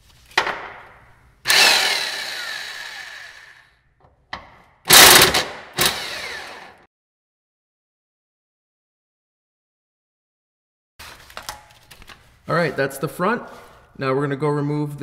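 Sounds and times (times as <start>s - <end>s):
electric impact wrench running: 1.5s - 3.8s, 4.9s - 6.9s.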